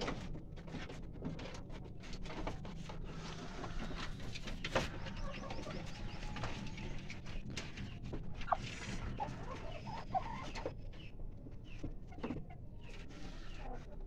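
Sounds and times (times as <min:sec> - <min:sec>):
birds calling: 0:03.0 - 0:14.0.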